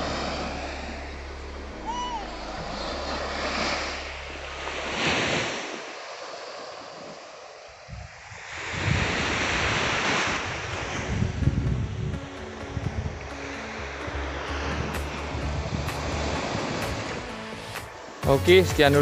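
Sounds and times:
small waves breaking on beach: 0:00.0 - 0:18.2
wind buffeting microphone: 0:07.7 - 0:17.3.

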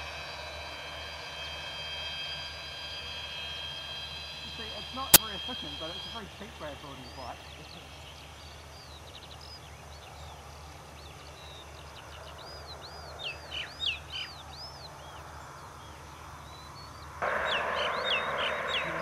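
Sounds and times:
bird chirps: 0:00.0 - 0:19.0
steady low hum: 0:00.0 - 0:19.0
bird whistled notes: 0:16.5 - 0:19.0
loud rushing noise: 0:17.2 - 0:19.0.

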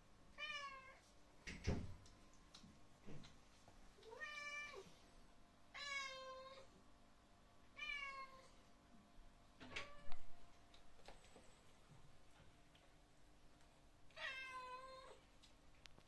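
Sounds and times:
cat meowing: 0:05.8 - 0:06.6, 0:07.8 - 0:08.5, 0:14.1 - 0:15.2.

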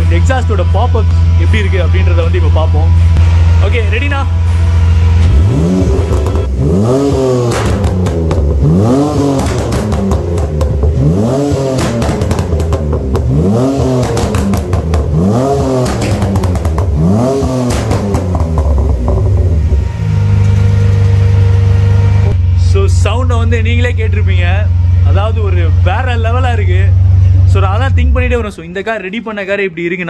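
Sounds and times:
car engine revving: 0:00.0 - 0:28.7
exhaust pops and crackles: 0:05.2 - 0:21.5.

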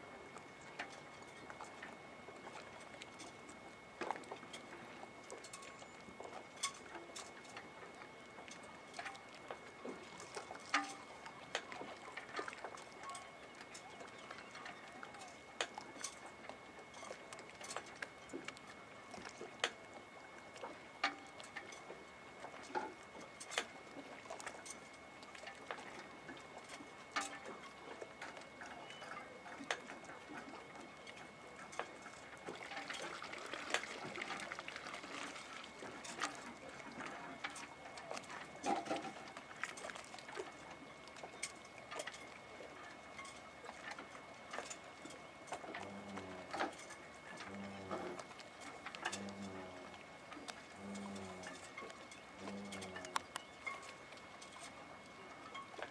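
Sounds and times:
water lapping at boat hull: 0:00.0 - 0:55.9
sharp clicks and light knocks: 0:52.7 - 0:54.8.

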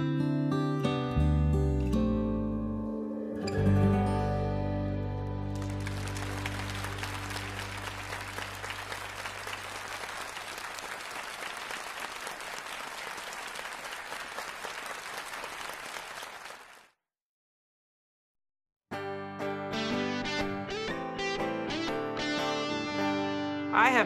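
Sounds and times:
audience applauding: 0:05.5 - 0:17.0.

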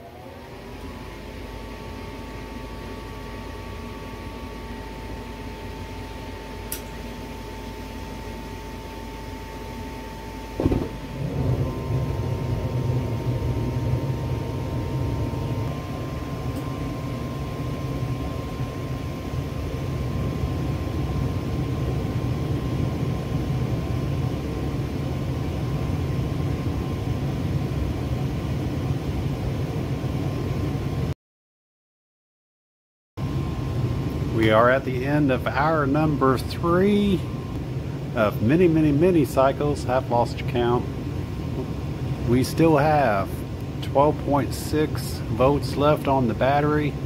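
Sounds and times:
burner and blower rumble: 0:00.0 - 0:31.1, 0:33.2 - 0:47.0
gas furnace humming with whine: 0:00.0 - 0:31.2, 0:33.2 - 0:47.0
furnace ignition thump: 0:10.6 - 0:13.2.

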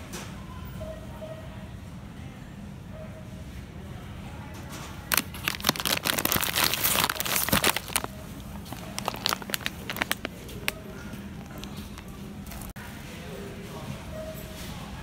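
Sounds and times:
plastic bag crinkling: 0:05.0 - 0:12.7.

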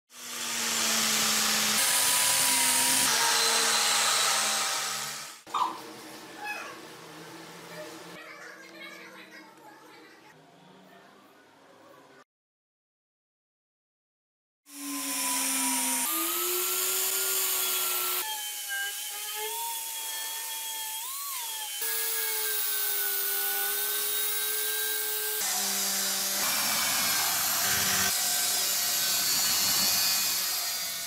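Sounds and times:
angle grinder motor whine: 0:14.7 - 0:20.1, 0:21.0 - 0:31.0.

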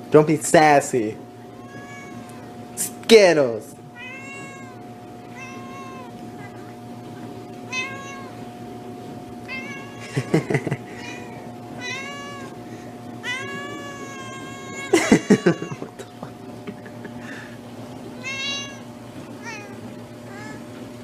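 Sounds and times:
faint steady hum: 0:00.0 - 0:21.0
cat meowing: 0:01.5 - 0:02.5, 0:04.0 - 0:06.8, 0:07.6 - 0:08.6, 0:09.4 - 0:10.1, 0:11.0 - 0:12.6, 0:13.2 - 0:15.9, 0:18.2 - 0:20.6.

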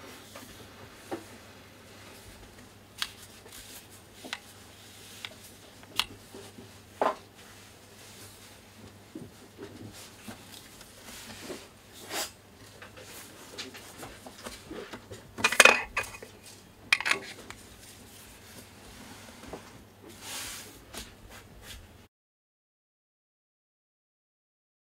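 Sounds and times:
camera lens handling clicks: 0:17.0 - 0:17.3.

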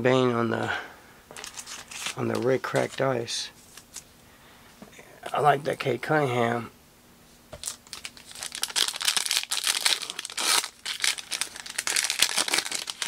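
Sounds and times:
foil wrapper crinkling: 0:01.3 - 0:03.0, 0:07.6 - 0:13.0.

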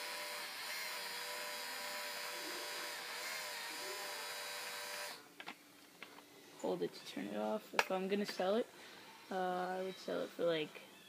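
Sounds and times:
electric motor whine: 0:00.0 - 0:05.3.

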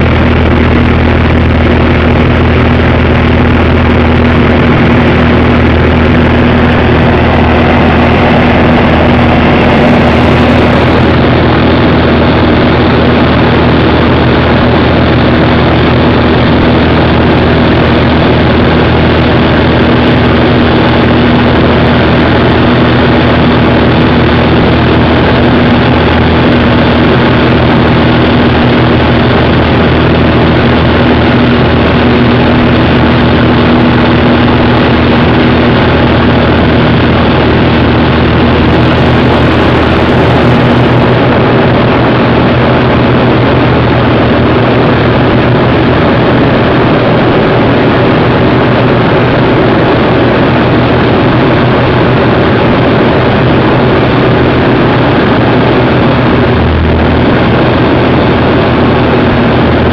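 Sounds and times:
propeller aircraft engine drone: 0:00.0 - 0:59.9
rushing air noise: 0:00.0 - 0:59.9.

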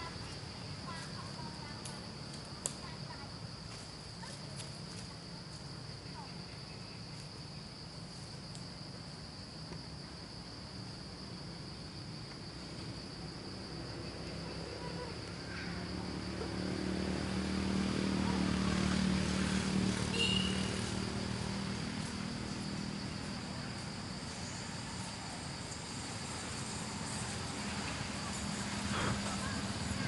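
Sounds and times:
insects droning: 0:00.0 - 0:30.0
motorbike engine passing: 0:13.6 - 0:30.0.

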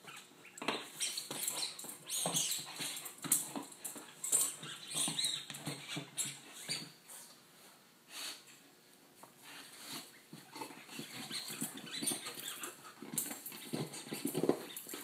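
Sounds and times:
dog scraping on hard floor: 0:09.5 - 0:15.0.

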